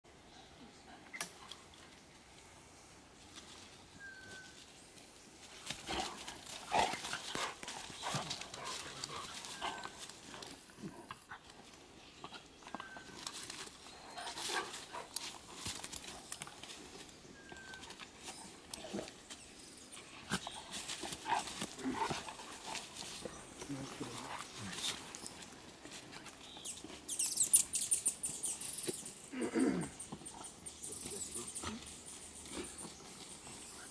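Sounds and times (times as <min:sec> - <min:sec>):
dogs scuffling in dry leaves: 0:05.4 - 0:10.7, 0:20.1 - 0:27.7.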